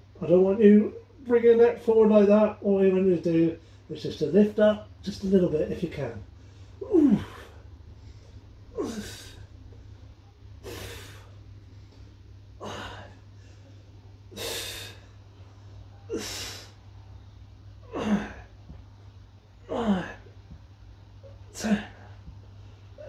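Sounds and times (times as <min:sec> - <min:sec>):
man grunting with effort: 0:06.8 - 0:07.6, 0:08.7 - 0:09.4, 0:17.9 - 0:18.5, 0:19.6 - 0:20.3, 0:21.5 - 0:22.2.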